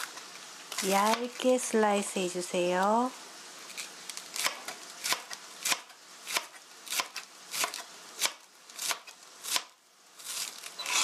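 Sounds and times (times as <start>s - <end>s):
knife slicing cabbage on board: 0.0s - 1.4s, 3.7s - 11.0s.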